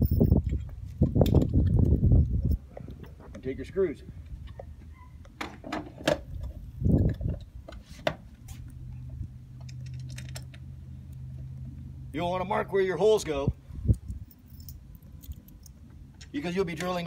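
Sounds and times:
small metal hardware clinking: 0.0 - 1.5, 9.6 - 10.7, 13.9 - 17.0.

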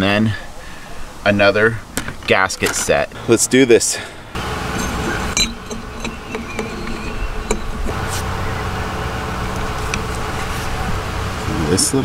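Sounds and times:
mechanical drone: 4.4 - 12.0
metal parts clicking: 4.7 - 8.0.

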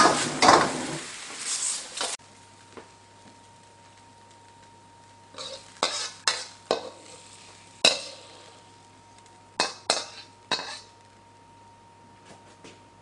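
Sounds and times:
ladle scraping wok: 0.0 - 2.2, 5.3 - 8.6, 9.6 - 10.9.

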